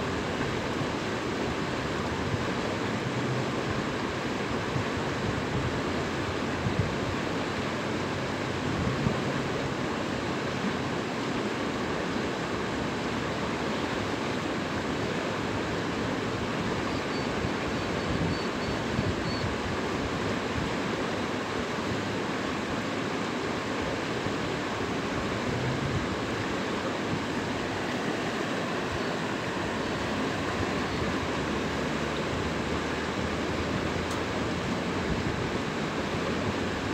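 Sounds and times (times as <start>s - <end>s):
water rushing and churning: 0.0s - 36.9s.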